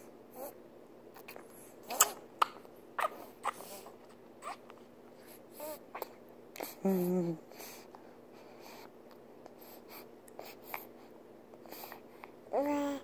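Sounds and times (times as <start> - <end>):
baby mouth smacking clicks: 1.9 - 3.1.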